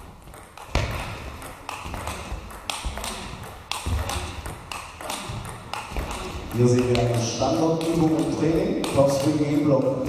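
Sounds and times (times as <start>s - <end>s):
table tennis ball clicking: 0.0s - 10.0s
heavier thuds: 0.7s - 8.6s.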